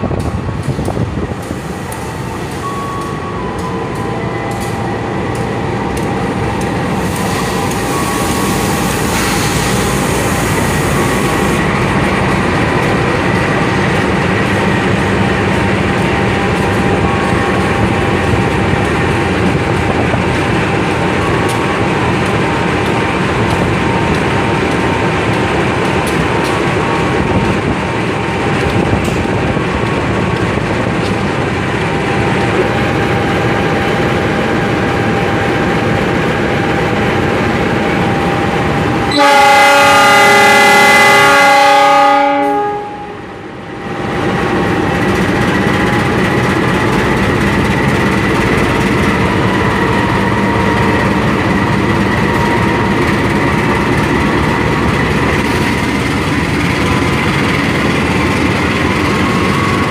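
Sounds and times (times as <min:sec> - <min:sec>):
diesel locomotive droning: 0:00.0 - 0:59.9
locomotive horn blast: 0:39.0 - 0:43.3.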